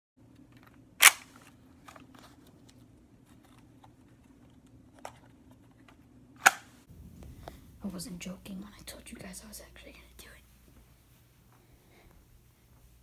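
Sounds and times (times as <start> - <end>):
faint steady hum: 0.2 - 13.0
toy blaster plastic clicks: 1.0 - 1.4.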